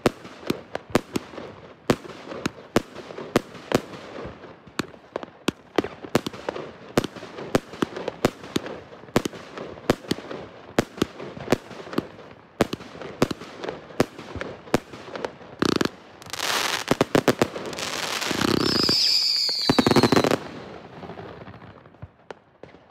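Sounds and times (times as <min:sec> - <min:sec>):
fireworks shots and bursts: 0:00.0 - 0:22.9
rapid-fire fireworks volley whistling: 0:15.6 - 0:22.9.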